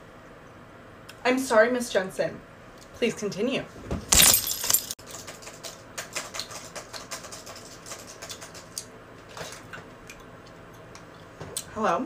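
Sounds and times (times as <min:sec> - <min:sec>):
laptop keyboard typing: 0:05.1 - 0:08.7.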